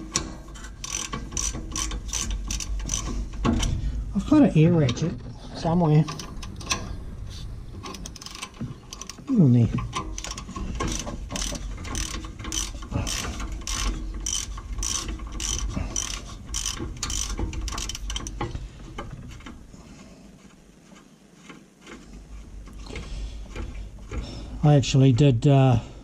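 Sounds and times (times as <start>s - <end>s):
socket ratchet clicking: 0.1s - 3.5s, 7.8s - 9.3s, 10.0s - 18.4s.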